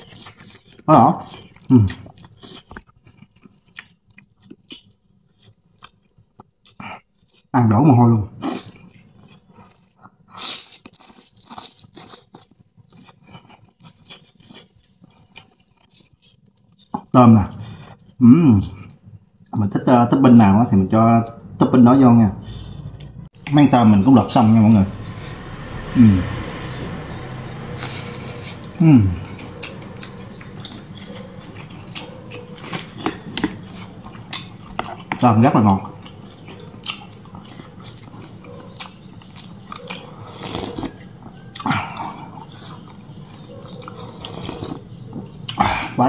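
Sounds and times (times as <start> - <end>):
wet chewing with mouth clicks: 0.0 - 7.5, 8.4 - 19.6, 29.4 - 45.8
noodle slurp: 40.1 - 41.0.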